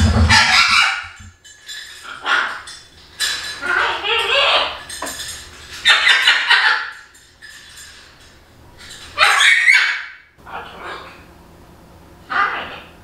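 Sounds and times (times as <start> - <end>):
macaw squawking loudly: 0.3 - 1.2.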